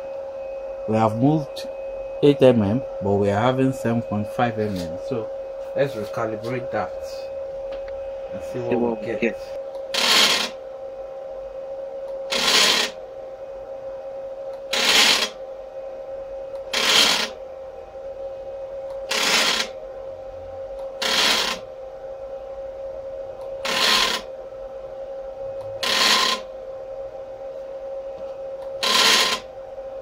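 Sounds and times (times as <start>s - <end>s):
steady hum: 0.0s - 30.0s
stepper motor buzzing bursts: 9.9s - 10.6s, 12.2s - 13.0s, 14.7s - 15.4s, 16.6s - 17.4s, 19.0s - 19.8s, 20.8s - 21.7s, 23.5s - 24.4s, 25.6s - 26.5s, 28.8s - 29.5s.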